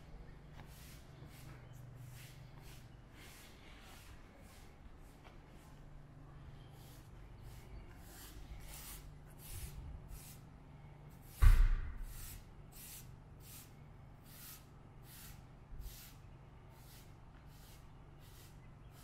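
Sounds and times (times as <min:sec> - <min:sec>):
loud thump: 0:11.4 - 0:12.1.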